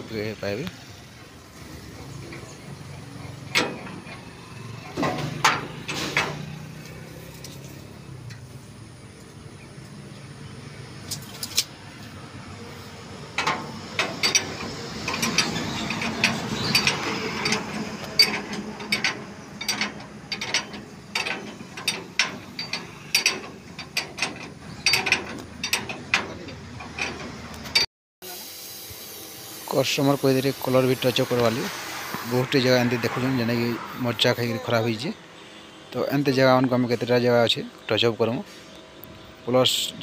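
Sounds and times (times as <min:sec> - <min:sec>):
wrench clicking on bolts: 0:13.4 - 0:27.8.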